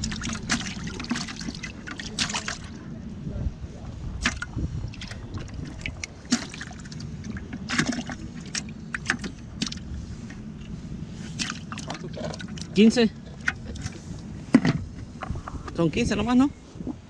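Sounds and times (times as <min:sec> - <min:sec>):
water splashing in a bucket: 0:00.0 - 0:02.8, 0:04.1 - 0:14.2
steady low rumble: 0:00.0 - 0:17.0.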